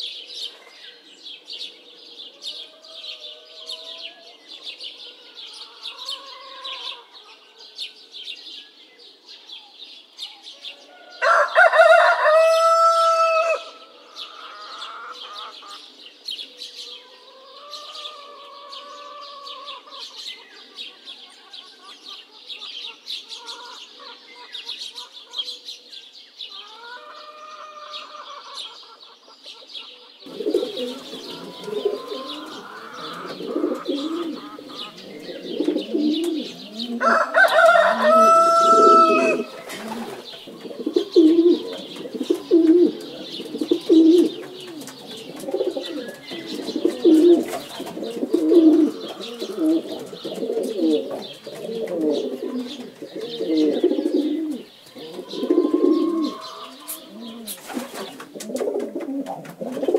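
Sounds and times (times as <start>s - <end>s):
pigeons cooing: 1.8s - 7.4s, 29.6s - 59.9s
rooster crowing: 10.8s - 15.4s, 30.3s - 35.0s, 36.4s - 40.0s, 55.2s - 57.4s.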